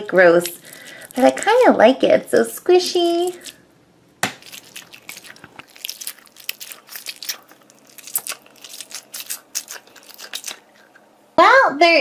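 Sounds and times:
squishy toy squelching: 0.4 - 1.8, 4.3 - 11.1.

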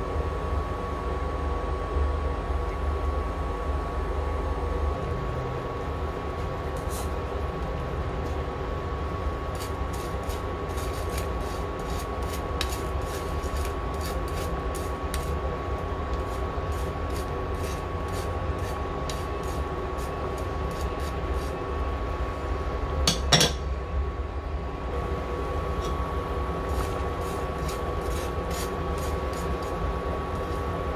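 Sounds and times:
cooktop hum and high whine: 0.0 - 30.9
spoon scraping metal strainer: 9.5 - 15.4, 16.1 - 21.6, 26.6 - 30.8.

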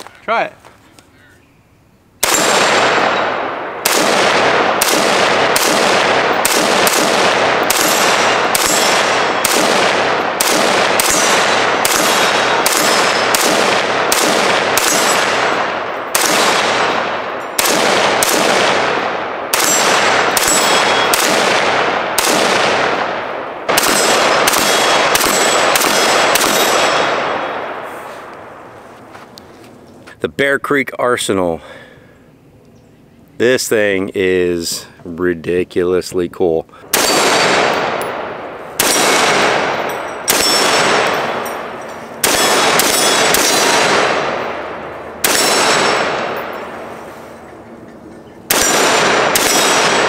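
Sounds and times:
rifle shots cracking and echoing: 2.2 - 28.8, 36.8 - 50.0
steel targets ringing: 7.7 - 9.6, 10.9 - 13.5, 19.0 - 21.2, 37.0 - 50.0.

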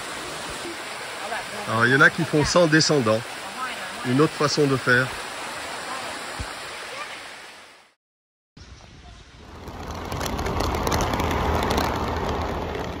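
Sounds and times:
rushing stream water: 0.0 - 8.0, 8.6 - 13.0
scooter road and wind noise: 9.4 - 13.0.

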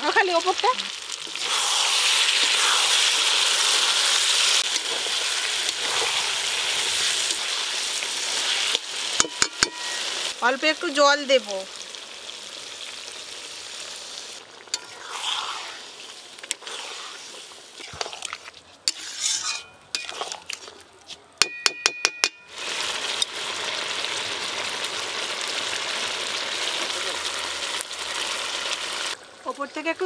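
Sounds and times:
curry sizzling in a metal pan: 0.0 - 20.8, 21.4 - 30.0
spatula scraping and knocking pan: 9.2 - 10.1, 17.8 - 20.7.

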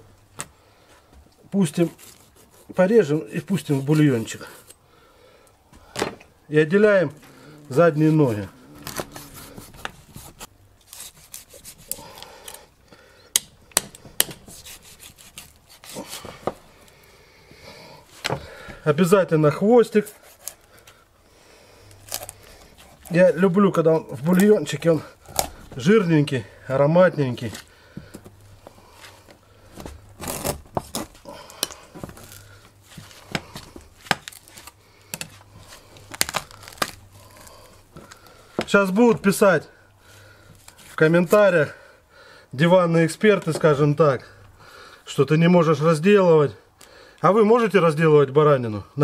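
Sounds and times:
knife slicing through meat: 1.8 - 2.8, 7.9 - 12.0
meat tearing: 7.1 - 12.7, 21.8 - 23.2, 25.2 - 25.8, 33.2 - 38.6.

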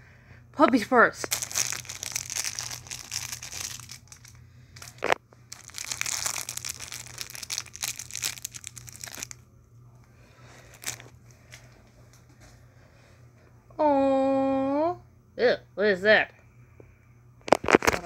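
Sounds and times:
plastic bag crinkling: 1.2 - 9.4, 10.6 - 11.6, 17.5 - 18.0.

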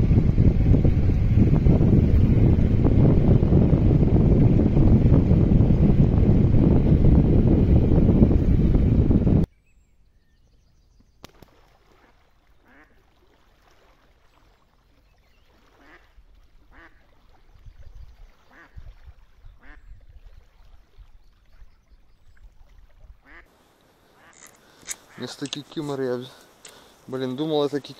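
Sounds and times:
duck quacking: 12.6 - 13.0, 15.8 - 16.1, 16.7 - 17.0, 18.5 - 18.8, 19.6 - 19.8, 23.2 - 23.5.

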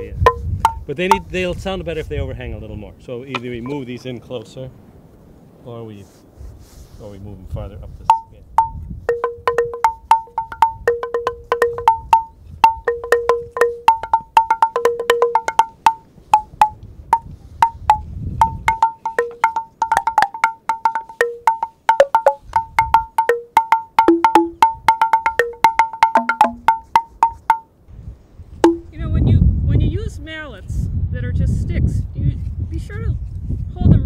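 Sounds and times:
wooden xylophone notes: 0.0 - 1.4, 8.0 - 27.8, 28.6 - 29.1.

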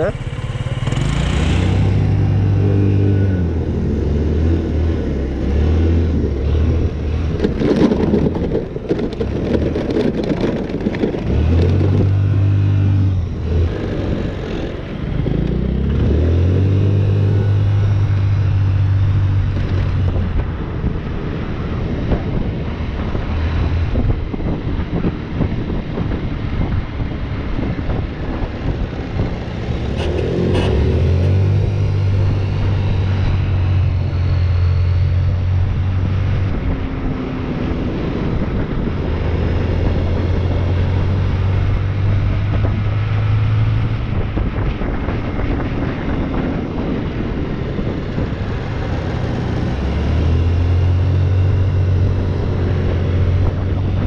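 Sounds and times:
car engine revving: 0.0 - 21.0, 27.6 - 36.7
road noise inside car: 0.0 - 54.0.

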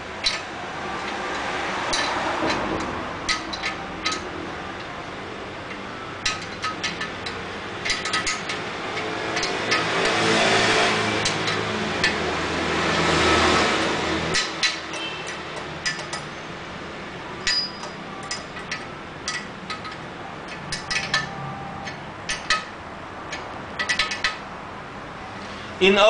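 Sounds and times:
metallic clicks of nut and bolt: 0.2 - 5.0, 5.6 - 10.3, 12.9 - 16.3, 17.4 - 24.5.

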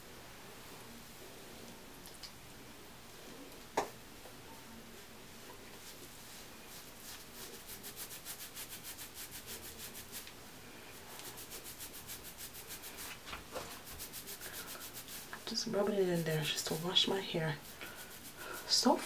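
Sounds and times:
fingers rubbing clay into hair: 6.7 - 10.3, 11.2 - 19.0.

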